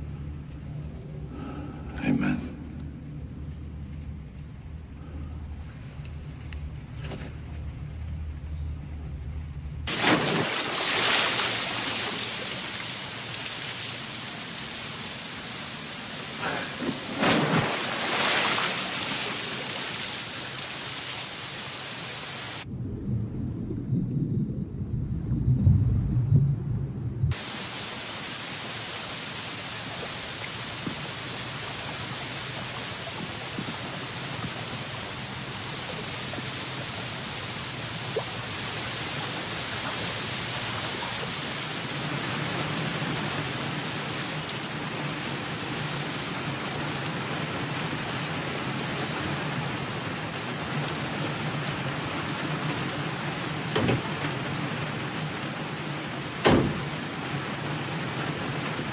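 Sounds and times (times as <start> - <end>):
heavy rain falling: 5.5 - 22.7, 27.3 - 58.9
deep rumble of thunder: 22.7 - 27.4.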